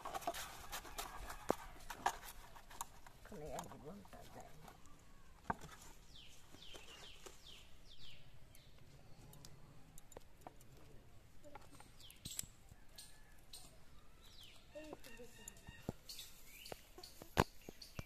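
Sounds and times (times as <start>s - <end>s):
bird chirping: 4.7s - 9.8s, 11.4s - 18.0s.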